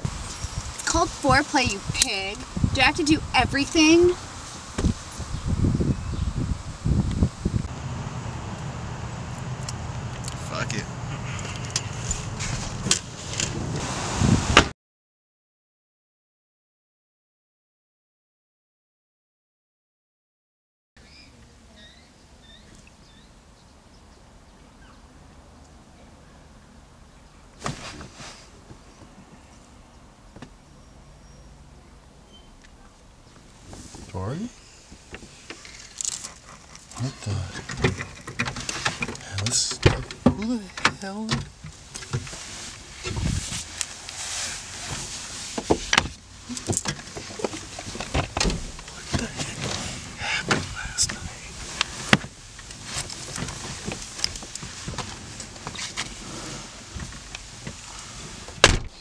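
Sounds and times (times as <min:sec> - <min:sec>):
low outdoor rumble: 0:00.0 - 0:14.6, 0:21.2 - 0:59.0
people shifting on car seat: 0:10.1 - 0:14.7, 0:27.6 - 0:29.2, 0:33.6 - 0:59.0
knocks and bumps: 0:37.5 - 0:42.4.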